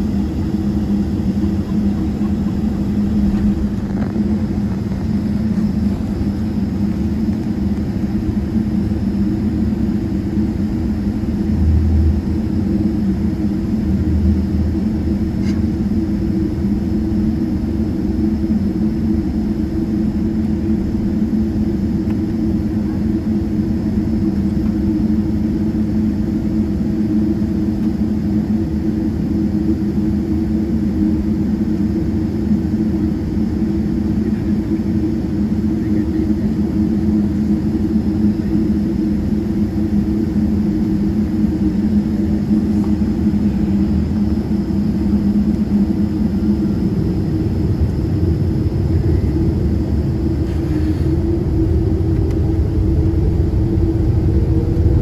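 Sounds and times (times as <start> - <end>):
jet engine cabin drone: 0.0 - 55.0.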